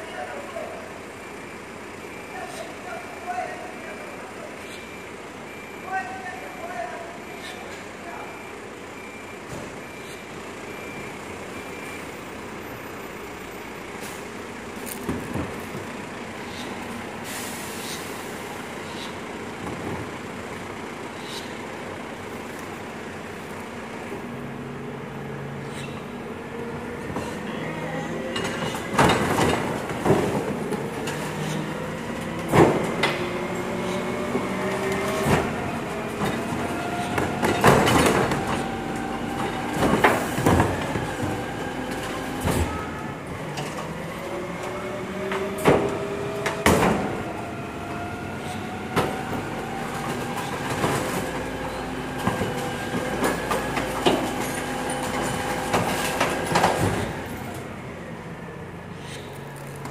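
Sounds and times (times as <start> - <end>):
metal clanks and bangs: 28.3 - 31.7, 34.8 - 38.7.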